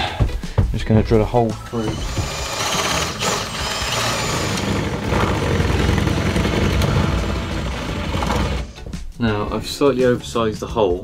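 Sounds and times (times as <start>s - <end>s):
power drill boring wood: 1.7s - 8.8s.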